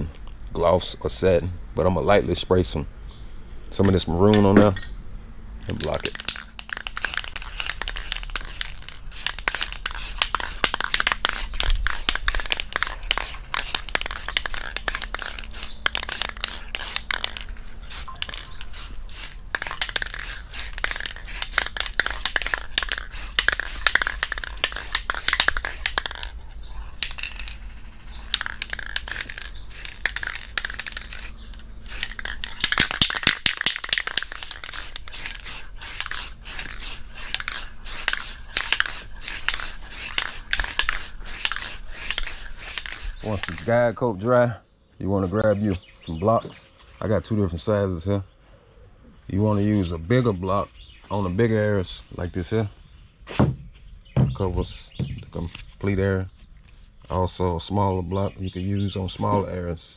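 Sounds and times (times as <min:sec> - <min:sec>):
mixing ball rattling in can: 0:05.7 - 0:18.8, 0:19.5 - 0:26.4, 0:27.0 - 0:43.7
spray paint hissing bursts: 0:05.8 - 0:44.0.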